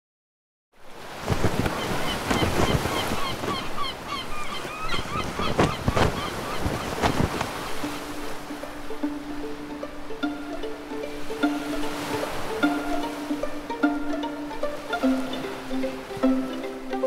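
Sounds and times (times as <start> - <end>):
waves breaking on shore: 0.8 - 17.0
wind gusting: 1.0 - 17.0
steady music note: 8.1 - 17.0.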